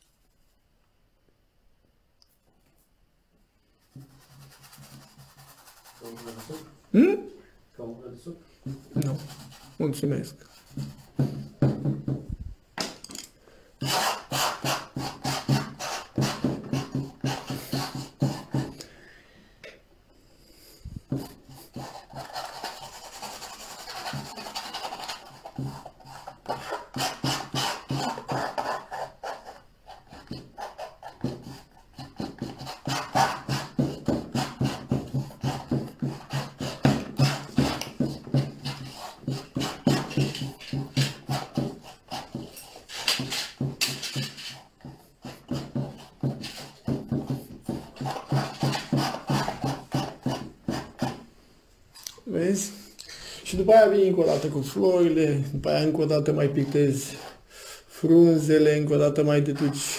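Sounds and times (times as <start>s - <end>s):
palette knife scraping paint: 3.8s - 6.7s, 8.7s - 11.6s, 13.8s - 18.8s, 21.1s - 51.3s.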